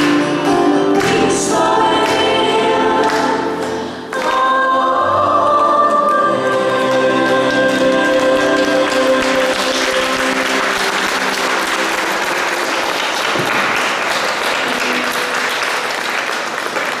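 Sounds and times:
person singing: 0.0s - 11.8s
audience applause: 6.3s - 17.0s.

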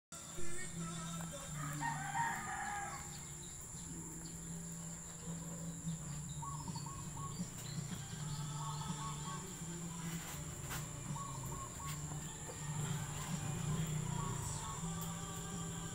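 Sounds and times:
rooster crowing: 1.2s - 3.5s.

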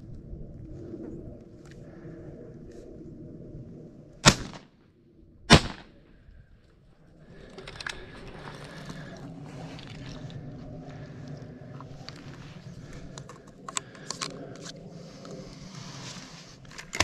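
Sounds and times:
shotgun shots: 4.2s - 4.6s, 5.5s - 5.9s
small clicks: 13.1s - 15.4s.

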